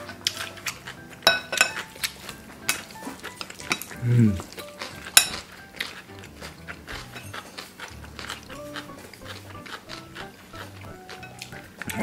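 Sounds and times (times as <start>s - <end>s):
chopsticks clicking on glass bowls: 0.0s - 6.1s.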